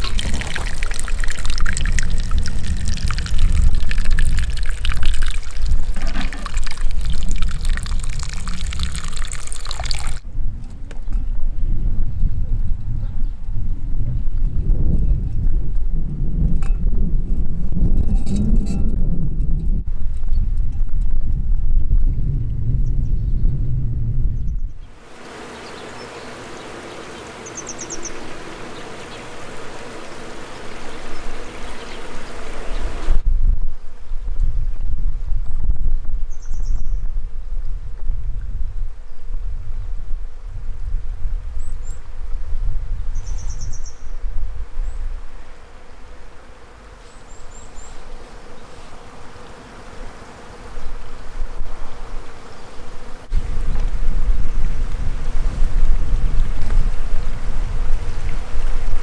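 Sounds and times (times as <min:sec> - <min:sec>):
insect buzz: 0:00.0 - 0:10.2, 0:24.9 - 0:33.2, 0:43.1 - 0:59.0
stream water rushing: 0:00.0 - 0:10.2, 0:25.0 - 0:33.2
low rumble: 0:10.2 - 0:24.8.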